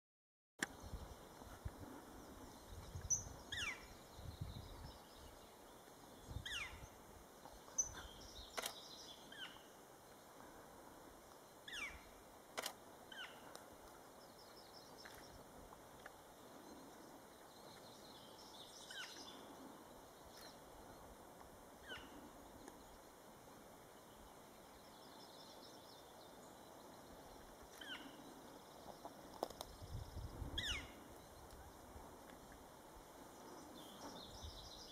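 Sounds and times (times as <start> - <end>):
sharp clicks: 8.5 - 8.8, 12.6 - 12.8.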